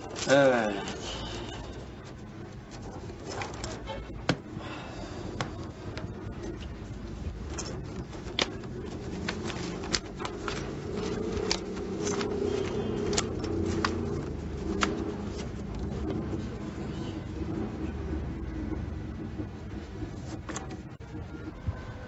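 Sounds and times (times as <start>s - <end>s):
playing cards snapping: 14.7s - 15.2s.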